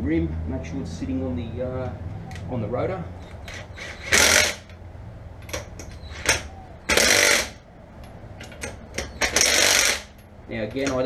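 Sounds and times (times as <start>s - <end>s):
impact wrench hammering: 3.4s - 4.8s, 5.4s - 7.6s, 8.4s - 10.2s.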